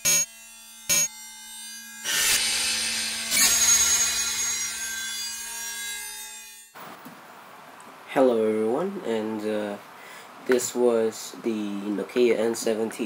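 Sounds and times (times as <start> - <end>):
sharp hit: 0.0 - 4.5.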